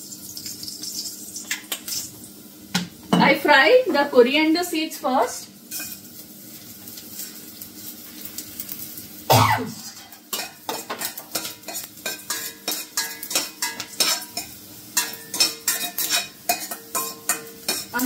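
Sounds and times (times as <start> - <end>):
metal spoon scraping a pan: 5.7 - 7.4, 9.7 - 18.0.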